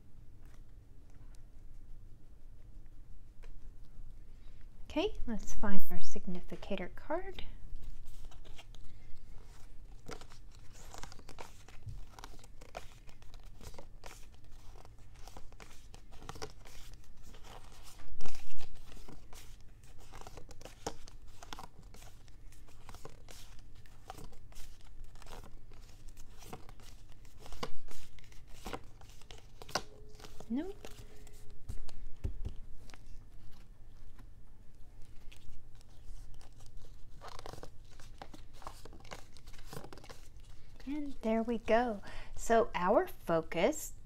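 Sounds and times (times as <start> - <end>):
cards being shuffled: 7.7 - 41.8.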